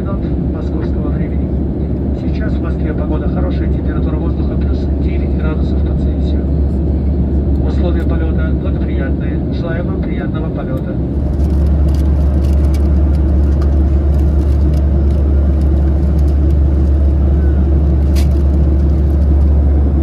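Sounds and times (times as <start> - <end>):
airliner cabin engine rumble: 0.0 - 20.0.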